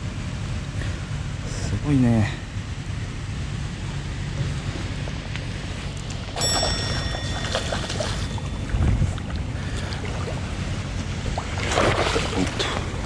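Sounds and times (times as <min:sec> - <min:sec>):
boat engine rumbling: 0:00.0 - 0:13.0
short high tone: 0:06.4 - 0:09.2
water splashing: 0:06.4 - 0:13.0.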